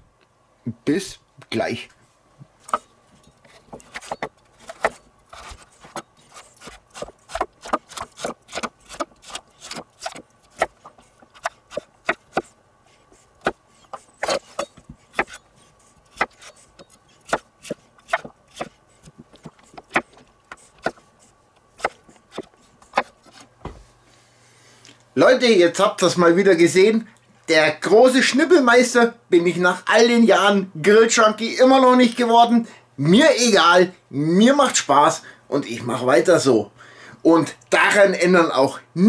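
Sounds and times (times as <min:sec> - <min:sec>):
knife chopping on wooden board: 0:03.7 - 0:12.5, 0:16.1 - 0:21.0, 0:21.8 - 0:23.8.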